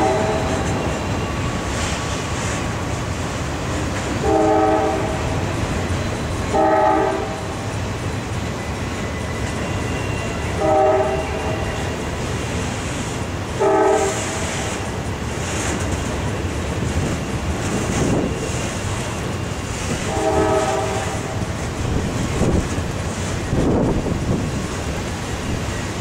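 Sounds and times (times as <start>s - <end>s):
train horn blasts: 0.0s - 0.8s, 4.2s - 5.4s, 6.4s - 7.6s, 9.6s - 12.1s, 13.6s - 14.9s, 19.5s - 21.6s
freight train rolling: 0.0s - 26.0s.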